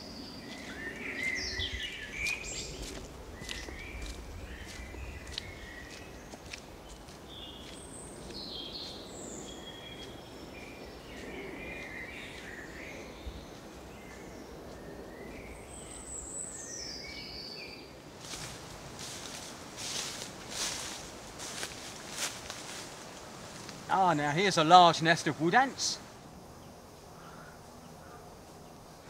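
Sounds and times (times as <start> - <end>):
birds singing and calling: 0.0 - 23.0, 23.9 - 29.0
low background noise: 0.0 - 29.0
footsteps in dry leaves: 0.1 - 14.9, 18.0 - 23.9.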